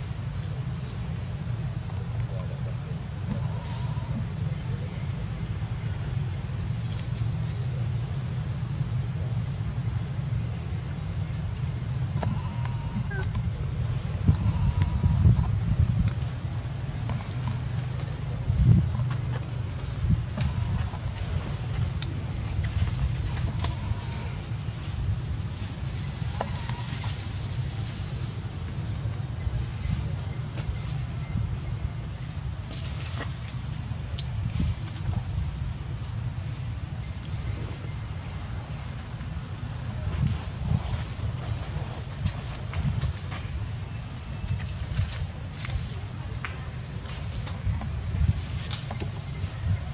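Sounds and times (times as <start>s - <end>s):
low fluctuating rumble: 0.0s - 32.8s
insects high-pitched drone: 0.0s - 49.9s
faint ticks: 21.9s - 24.2s.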